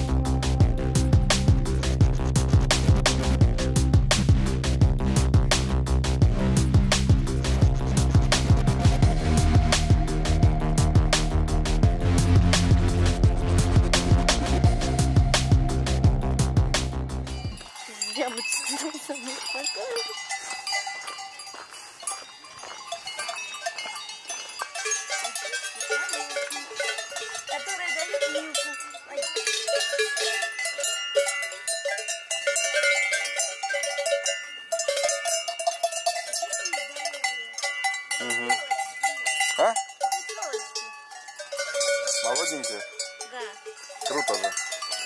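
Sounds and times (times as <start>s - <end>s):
cowbells clanging: 14.0s - 45.0s.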